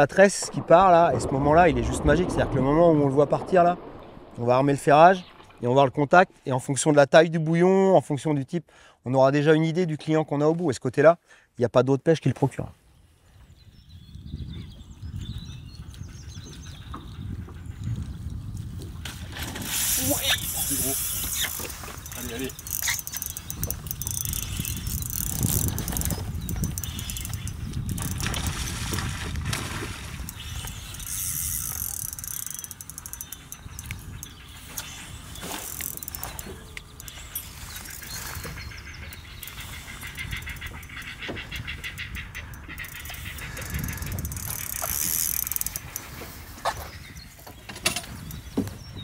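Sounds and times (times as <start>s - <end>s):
low rumble: 0.0s - 5.8s
fishing reel clicking whirr: 19.7s - 28.3s, 30.2s - 38.2s, 39.1s - 41.1s, 41.8s - 46.1s.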